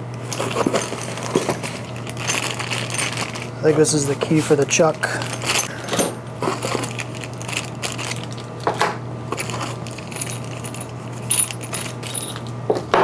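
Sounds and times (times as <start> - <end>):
metal parts clinking in bags: 0.2 - 12.5.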